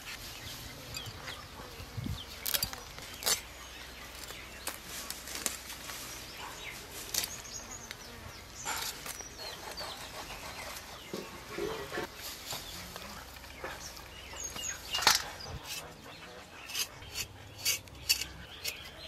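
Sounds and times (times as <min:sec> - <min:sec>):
knife scraping fish scales: 0:16.6 - 0:19.0.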